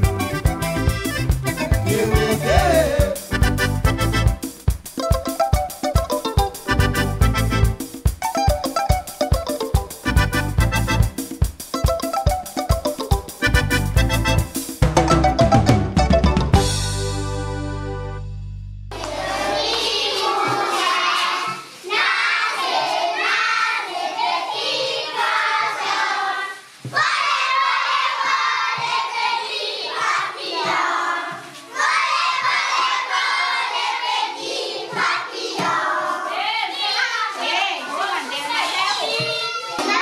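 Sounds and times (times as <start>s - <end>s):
children singing together: 1.9s - 3.3s, 18.9s - 37.5s
held music chord: 13.5s - 19.7s
hands clapping: 18.9s - 21.2s.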